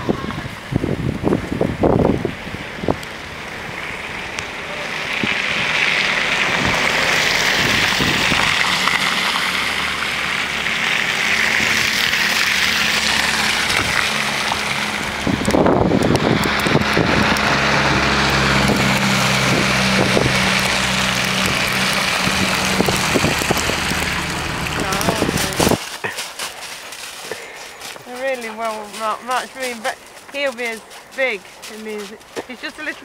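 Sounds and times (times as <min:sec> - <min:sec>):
wind noise on microphone: 0:00.0 - 0:03.8, 0:05.1 - 0:09.2, 0:13.4 - 0:26.0
car engine hum: 0:00.0 - 0:33.0
tyres hissing through slush: 0:03.9 - 0:15.2, 0:18.1 - 0:33.0.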